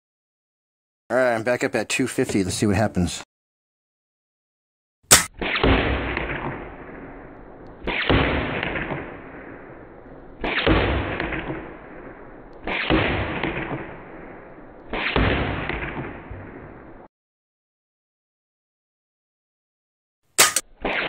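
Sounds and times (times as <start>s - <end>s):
deep slowed-down rifle booms: 5.3s - 17.1s.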